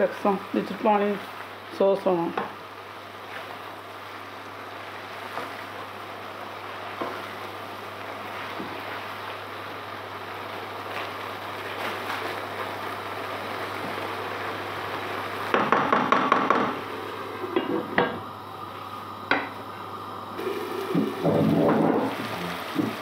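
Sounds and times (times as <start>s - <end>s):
cooking hiss: 0.0s - 23.0s
wooden spoon stirring in pot: 0.1s - 9.8s.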